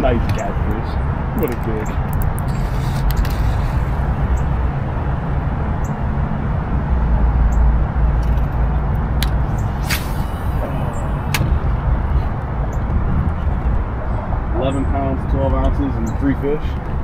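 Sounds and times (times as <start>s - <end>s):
road traffic rumble: 0.0s - 17.0s
sharp clicks: 1.4s - 3.5s.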